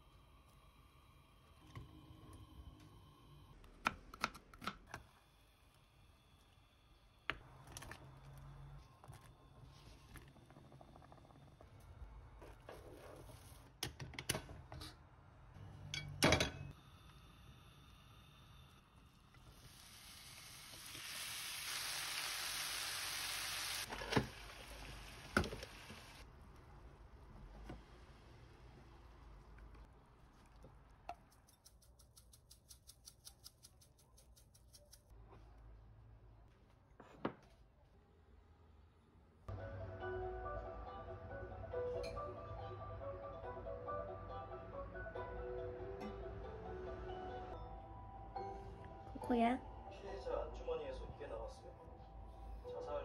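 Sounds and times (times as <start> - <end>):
food sizzling in frying pan: 19.5 - 26.2.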